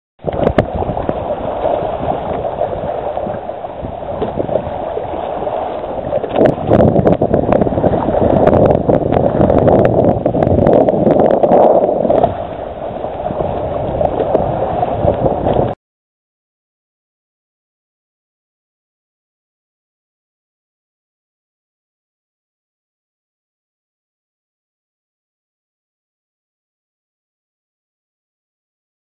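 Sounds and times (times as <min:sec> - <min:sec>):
water splashing against hull: 0:00.2 - 0:15.8.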